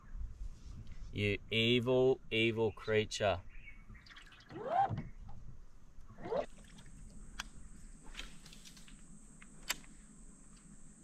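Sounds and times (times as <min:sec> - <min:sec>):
water sloshing and gurgling: 0:03.9 - 0:05.1, 0:06.1 - 0:07.2.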